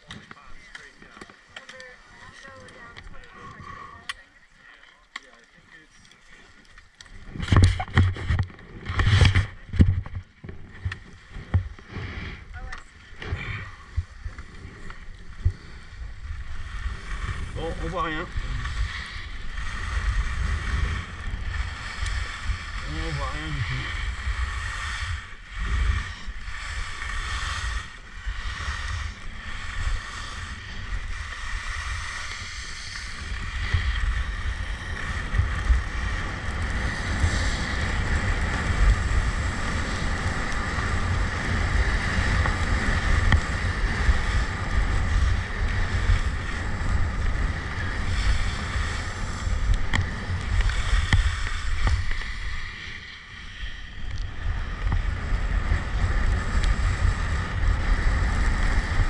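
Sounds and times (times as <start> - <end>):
skis scraping on icy snow: 0.0 - 59.0
wind buffeting microphone: 7.2 - 52.8.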